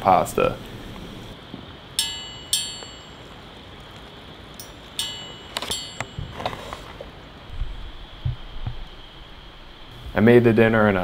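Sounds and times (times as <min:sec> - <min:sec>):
faint steady hiss: 0:00.0 - 0:11.0
metallic clinks of cookpot: 0:04.6 - 0:06.3.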